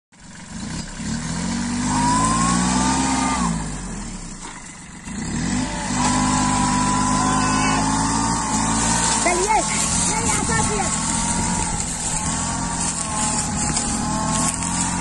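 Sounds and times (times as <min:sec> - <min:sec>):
tractor diesel engine revving: 0:00.2 - 0:15.0
high whine: 0:05.6 - 0:15.0.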